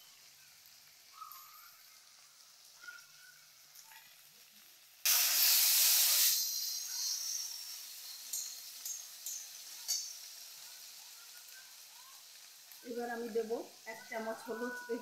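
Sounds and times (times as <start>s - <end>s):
tomatoes sizzling in hot oil: 0.0s - 15.0s
metal spatula scraping pan: 5.1s - 10.4s.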